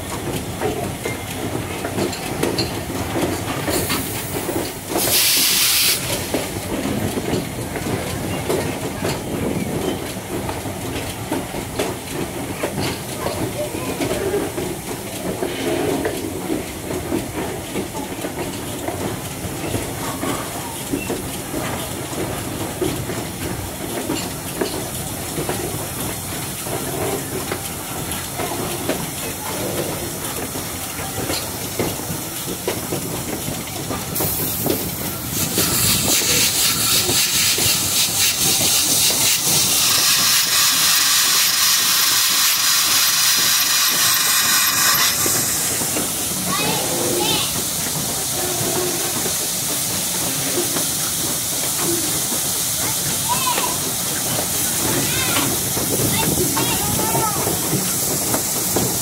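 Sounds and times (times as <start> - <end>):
train cars rumbling and clattering: 0.0 - 59.0
loud steam hiss: 3.4 - 7.6, 19.1 - 59.0.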